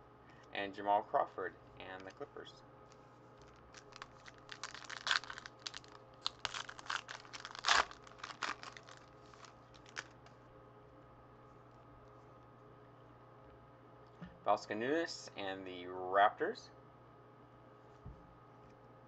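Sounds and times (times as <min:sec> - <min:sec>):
foil wrapper tearing and crinkling: 0:03.4 - 0:10.2.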